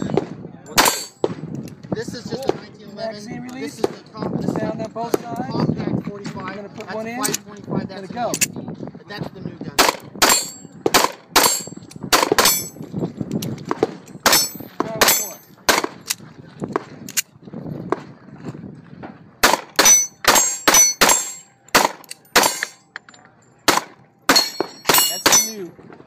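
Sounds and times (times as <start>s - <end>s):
pistol shots: 0.1s - 1.5s, 9.8s - 12.7s, 13.6s - 16.0s, 19.4s - 22.8s, 23.6s - 25.6s
bullets ringing off steel: 0.7s - 1.2s, 19.8s - 22.8s, 23.6s - 25.6s.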